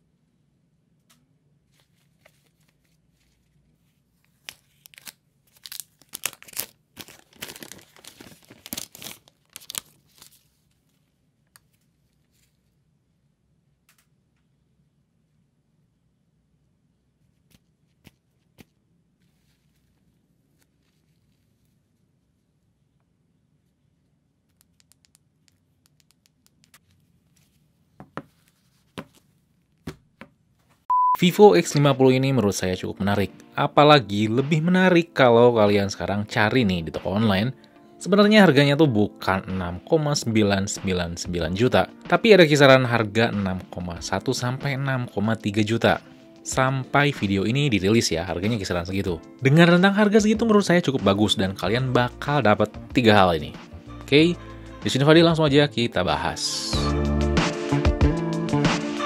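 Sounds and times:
plastic wrap crinkling and tearing: 1.8s - 11.0s
smartphone handling clicks: 24.5s - 26.8s.

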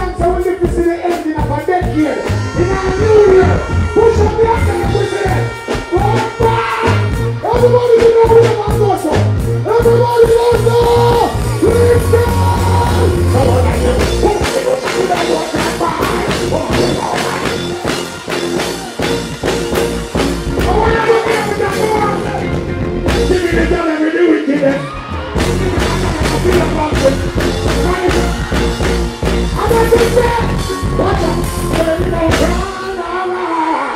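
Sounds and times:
steady drum beat: 0.0s - 23.9s, 24.7s - 32.9s
heavy bass line: 0.0s - 24.0s, 24.8s - 33.1s
dancehall music over pa: 0.0s - 33.9s
person singing: 9.8s - 17.9s.

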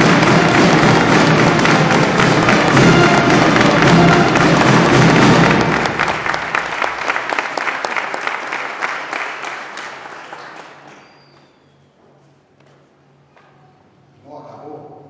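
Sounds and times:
audience applauding: 0.0s - 11.2s.

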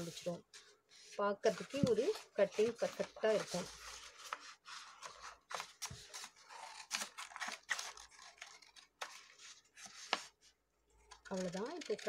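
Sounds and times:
paper rustling: 0.0s - 12.0s
scissors snipping paper: 11.1s - 12.0s.

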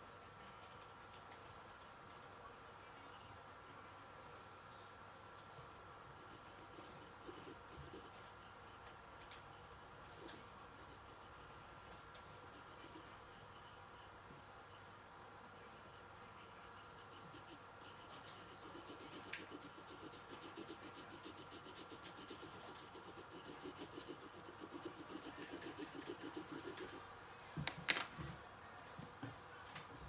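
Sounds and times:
pencil scribbling on paper: 5.9s - 27.0s
pencil knocking on wooden table: 27.6s - 28.3s.

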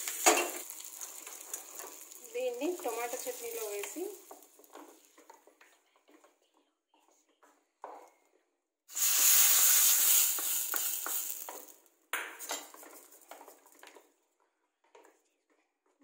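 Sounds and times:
hot oil sizzling loudly: 0.0s - 5.2s, 8.9s - 13.6s.

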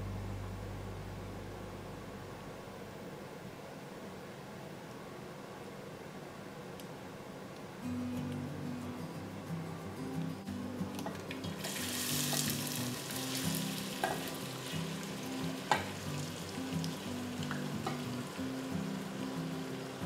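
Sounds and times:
soft background music with bass: 0.0s - 3.0s, 7.9s - 20.0s
onions sizzling in hot fat: 10.9s - 20.0s.

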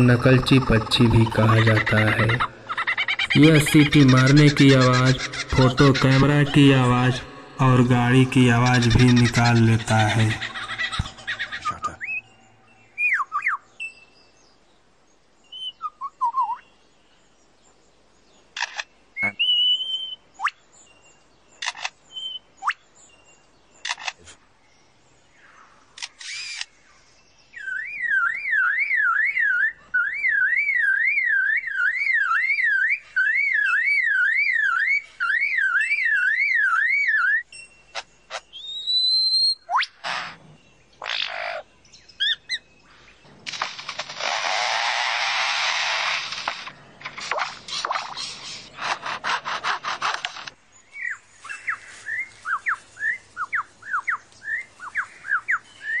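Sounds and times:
lyrebird harsh clicking bursts: 0.0s - 12.0s, 18.6s - 18.9s, 21.6s - 22.0s, 23.8s - 24.4s, 26.0s - 26.8s, 43.4s - 50.6s
lyrebird whistled notes: 19.2s - 20.6s, 38.6s - 39.9s
bird mimicking car alarm siren: 27.6s - 40.0s
short rasping burst: 43.4s - 50.6s.

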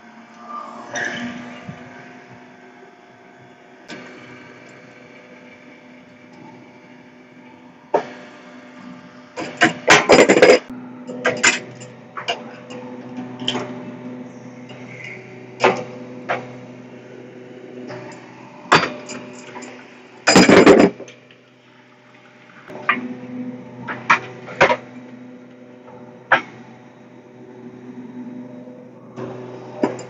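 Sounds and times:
steady machine hum: 0.0s - 30.0s
metallic clanks of tools: 9.4s - 13.7s, 17.9s - 21.1s.

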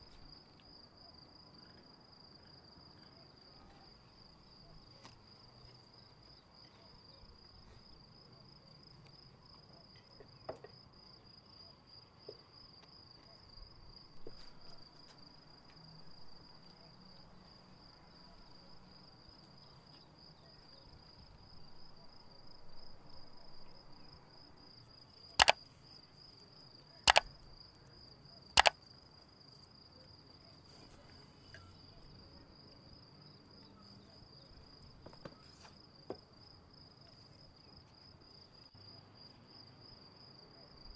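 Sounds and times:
cricket trilling: 12.8s - 27.7s, 28.3s - 29.0s
loud sharp clicks: 25.4s - 25.6s, 27.1s - 27.3s.

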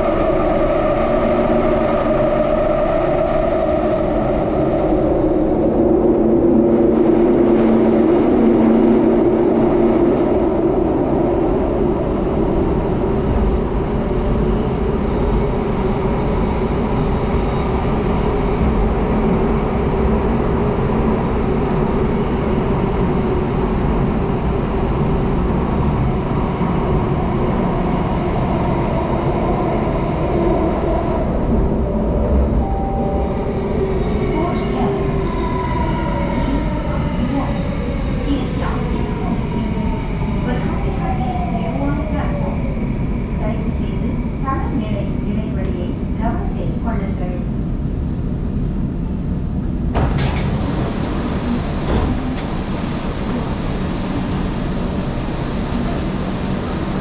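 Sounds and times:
train rumbling in tunnel: 0.0s - 57.0s
humming tone: 30.6s - 35.4s.

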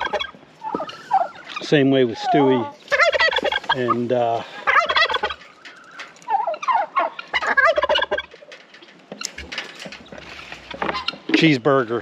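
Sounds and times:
turkey gobbling: 0.0s - 11.5s.

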